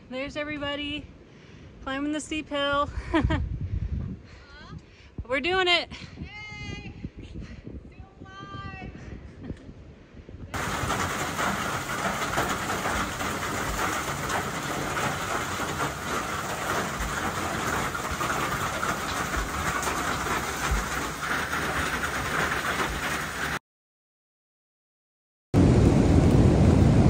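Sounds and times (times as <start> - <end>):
heavy rain pouring: 10.6 - 23.6.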